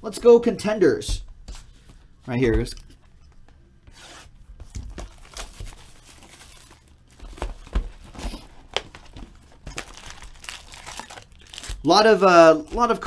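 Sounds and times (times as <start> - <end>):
plastic shrink-wrap crackling: 5.1 - 7.6, 8.4 - 13.0.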